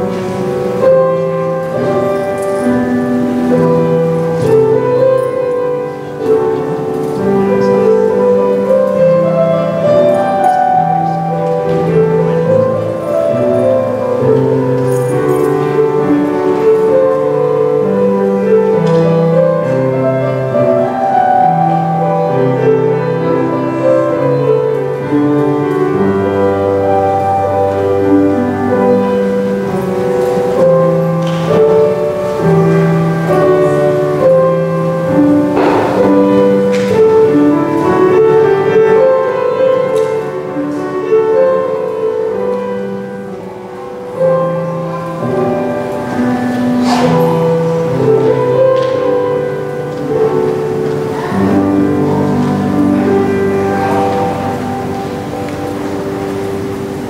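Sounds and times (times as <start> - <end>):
slow keyboard instrumental music: 0.0 - 57.0
soft knocks: 35.4 - 37.3.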